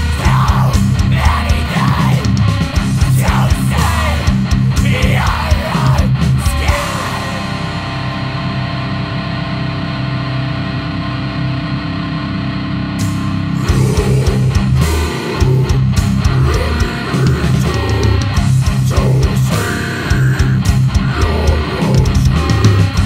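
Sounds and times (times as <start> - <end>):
heavy rock band with drums: 0.0 - 23.0
guitar chord ringing: 7.1 - 13.7.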